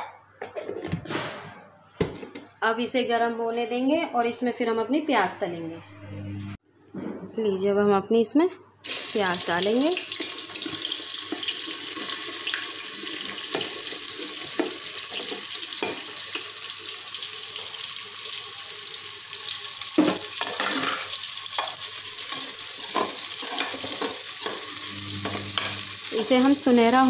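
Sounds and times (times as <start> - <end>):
onions sizzling in hot oil: 8.8 - 27.0.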